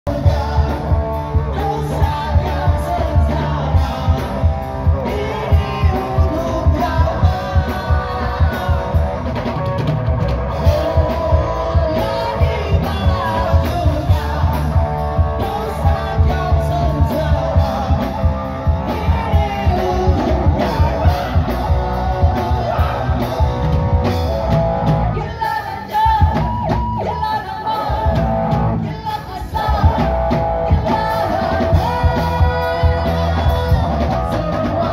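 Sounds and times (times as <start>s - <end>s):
bass guitar: 0.0s - 34.9s
drum kit beat: 0.1s - 34.9s
electric guitar: 0.1s - 34.9s
man singing: 0.1s - 34.9s
woman singing: 28.8s - 34.9s.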